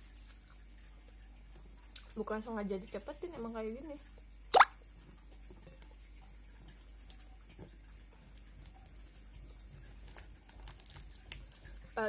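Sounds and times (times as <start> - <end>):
soft chewing: 5.6 - 12.0.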